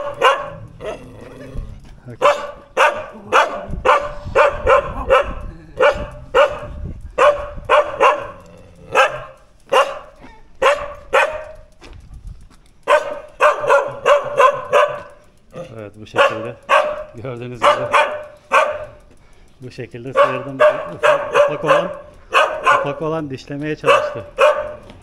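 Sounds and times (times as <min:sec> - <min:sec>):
dogs barking fiercely: 0:00.0 - 0:11.7, 0:12.8 - 0:19.2, 0:20.0 - 0:25.0.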